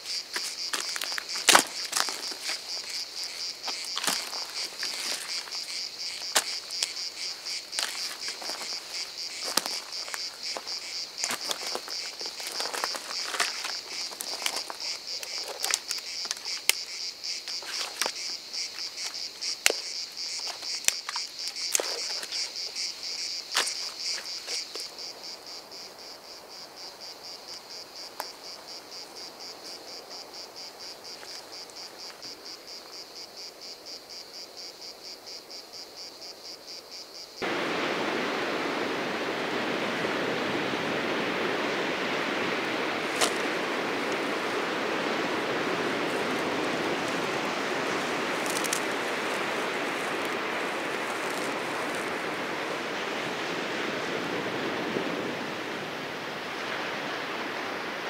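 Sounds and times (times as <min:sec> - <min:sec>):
insects chirring: 0:00.0 - 0:58.0
twigs snapping: 0:12.4 - 0:16.8, 0:43.1 - 0:43.5, 0:48.0 - 0:52.1.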